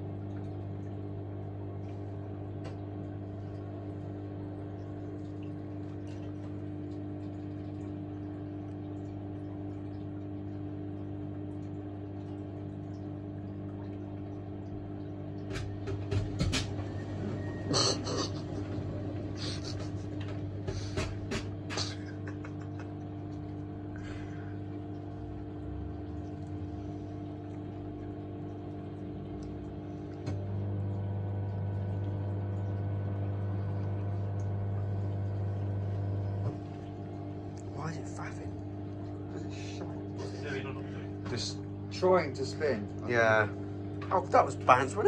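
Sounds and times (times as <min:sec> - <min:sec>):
loud steady low hum: 0:00.0 - 0:45.0
washing machine motor humming: 0:00.0 - 0:45.0
laundry knocking and splashing: 0:15.4 - 0:22.9.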